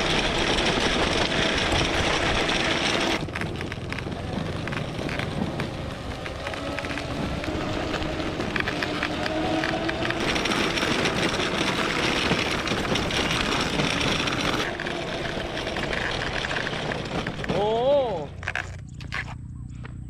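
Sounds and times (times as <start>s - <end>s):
wheels rumbling on gravel: 0.0s - 20.0s
electric motor whine: 6.2s - 17.0s.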